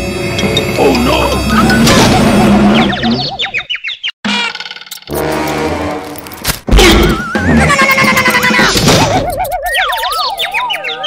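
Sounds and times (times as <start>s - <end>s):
music: 0.0s - 2.6s, 5.1s - 9.1s.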